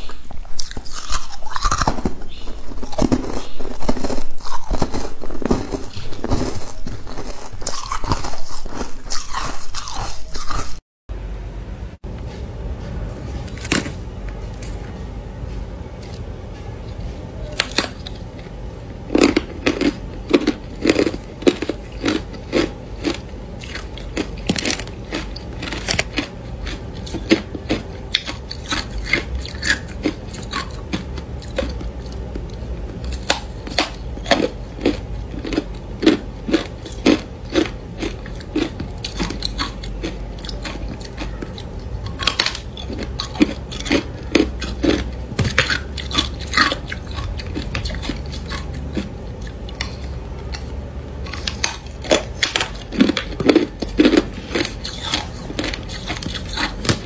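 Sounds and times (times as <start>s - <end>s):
person crunching ice: 0.5s - 10.8s, 51.3s - 56.8s.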